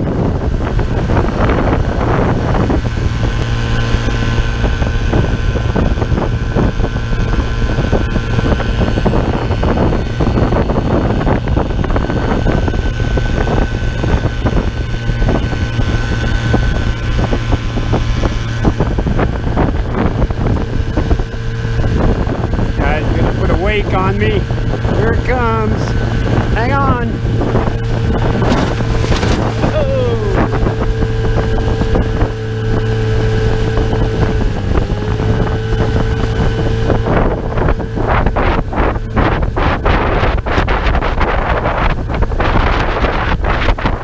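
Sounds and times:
outboard motor running: 0.0 - 44.0
wind buffeting microphone: 0.0 - 44.0
water rushing past hull: 14.4 - 42.7.

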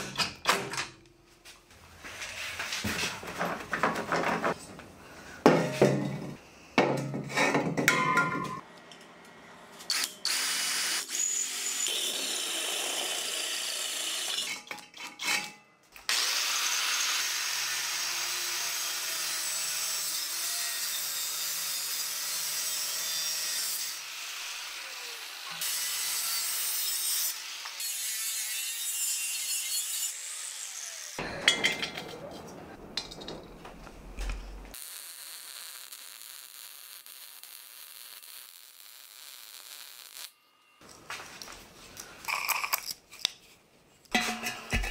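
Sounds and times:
metal parts clanking on bench: 31.2 - 33.6, 44.1 - 44.9.

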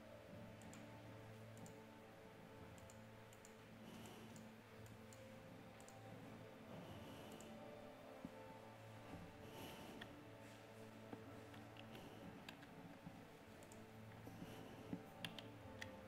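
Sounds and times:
low steady hum: 0.0 - 16.0
computer mouse clicks: 0.6 - 0.9, 1.5 - 1.8, 2.7 - 6.0, 7.2 - 7.6, 11.5 - 12.7, 13.6 - 13.9, 14.9 - 16.0.

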